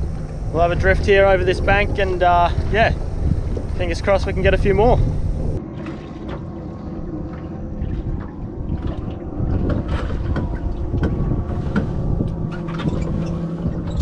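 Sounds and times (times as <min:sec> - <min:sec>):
wind buffeting microphone: 0:00.0 - 0:05.6, 0:06.4 - 0:14.0
water sloshing against hull: 0:00.0 - 0:14.0.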